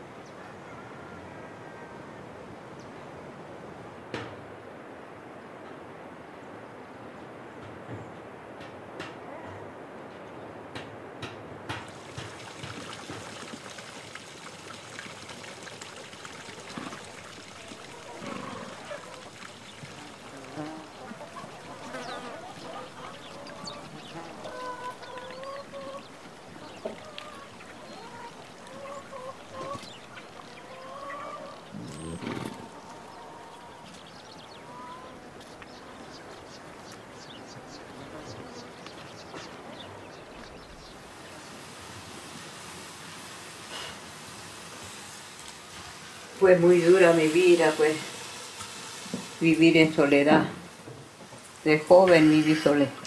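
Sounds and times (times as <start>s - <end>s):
steady outdoor hiss: 0.0s - 53.0s
chickens calling: 11.8s - 42.2s, 43.2s - 53.0s.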